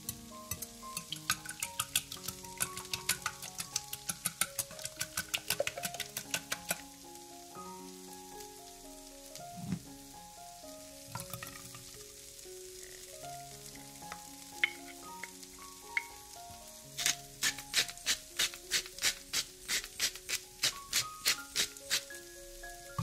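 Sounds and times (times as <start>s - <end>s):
soft background music: 0.0s - 23.0s
whisk beating eggs in glass bowl: 0.5s - 6.7s.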